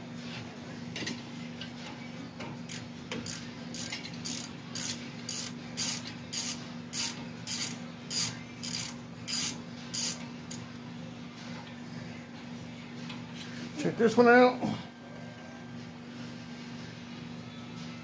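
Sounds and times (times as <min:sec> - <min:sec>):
ratchet pawl clicking: 0:02.7 - 0:10.6.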